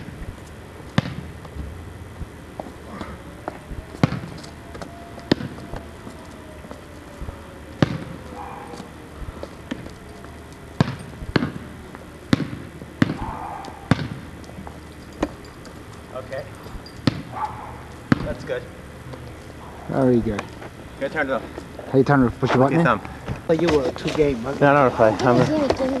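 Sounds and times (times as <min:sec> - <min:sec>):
basketball bouncing on asphalt: 0:00.0 - 0:05.9, 0:07.2 - 0:15.4, 0:16.7 - 0:18.5.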